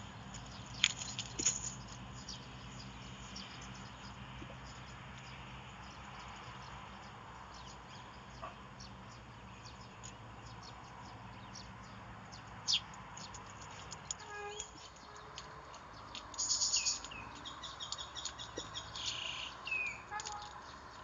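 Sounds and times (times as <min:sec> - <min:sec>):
high ticks and chirps: 0:00.1 - 0:21.0.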